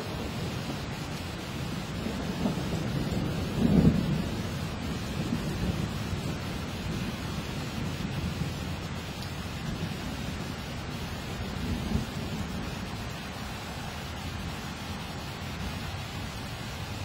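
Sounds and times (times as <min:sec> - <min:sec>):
thunder rumbling: 0:00.0 - 0:13.4
steady hiss: 0:00.0 - 0:17.0.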